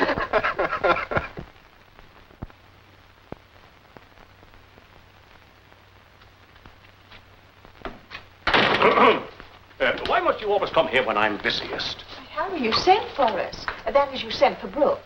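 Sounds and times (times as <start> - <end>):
film soundtrack hiss and hum: 0.0 - 15.0
faint clicks and pops: 1.2 - 8.6, 12.7 - 13.9.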